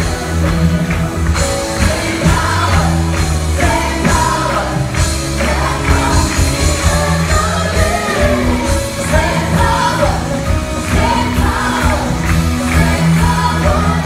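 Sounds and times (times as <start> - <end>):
drums: 0.0 - 14.0
guitars: 0.0 - 14.0
keyboard: 0.0 - 14.0
men and women singing: 1.4 - 14.0.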